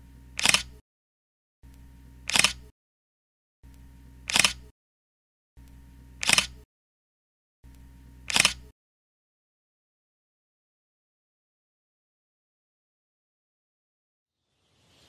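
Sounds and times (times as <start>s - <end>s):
faint hum: 0.0s - 0.8s, 1.6s - 2.7s, 3.6s - 4.7s, 5.6s - 6.6s, 7.6s - 8.7s
camera shutter clicks: 0.4s - 0.8s, 2.3s - 2.7s, 4.3s - 4.7s, 6.2s - 6.6s, 8.3s - 8.7s.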